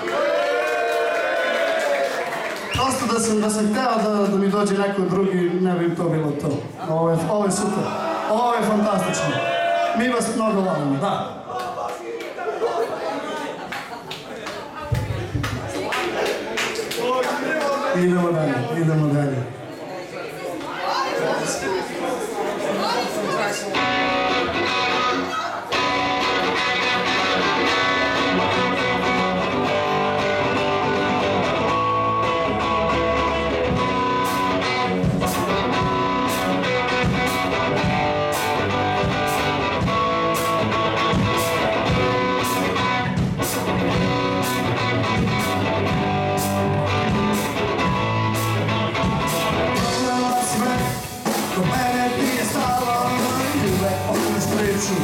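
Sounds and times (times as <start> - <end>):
electric guitar: 23.7 - 55.0
live rock band playing: 23.7 - 55.0
drum and cymbal hits: 33.7 - 55.0.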